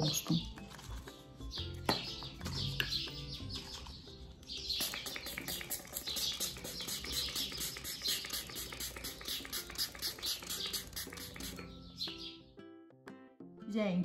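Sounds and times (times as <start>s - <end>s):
soft background music: 0.0s - 14.0s
short hissing brush strokes: 6.4s - 11.6s.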